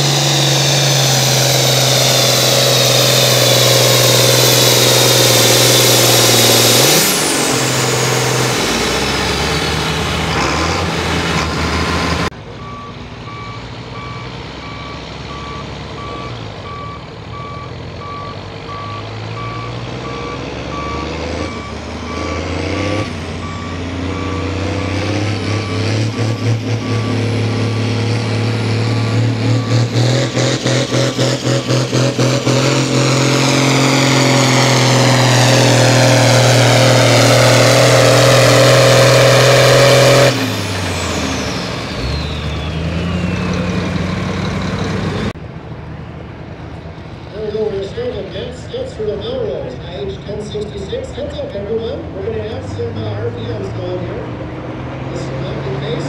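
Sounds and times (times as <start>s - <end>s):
tractor engine at full throttle: 0.0s - 56.0s
backup alarm beeping: 12.6s - 22.5s, 23.4s - 27.4s, 28.8s - 31.2s.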